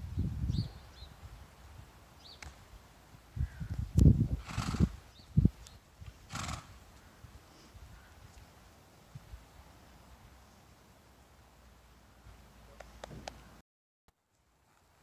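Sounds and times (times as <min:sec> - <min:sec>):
horse snorting: 0:04.4 - 0:05.0, 0:06.3 - 0:06.8.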